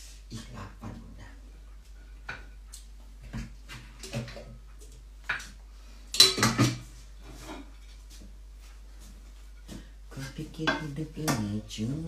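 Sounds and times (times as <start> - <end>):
dishes and cutlery clattering: 6.2 - 8.0.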